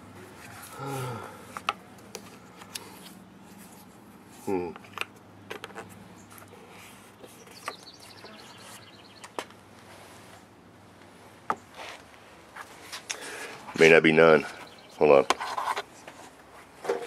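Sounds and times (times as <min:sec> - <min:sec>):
bird trill: 0:07.4 - 0:09.4.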